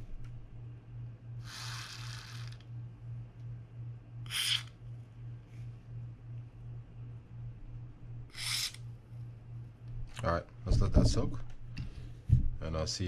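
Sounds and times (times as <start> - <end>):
aerosol can spraying: 4.3 - 4.7, 8.3 - 8.8.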